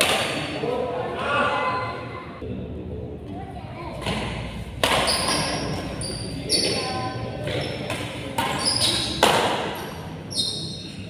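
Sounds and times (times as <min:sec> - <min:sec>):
racket striking shuttlecock: 0:04.0 - 0:05.6, 0:07.9 - 0:09.8
shoe squeaks on court floor: 0:04.9 - 0:11.0.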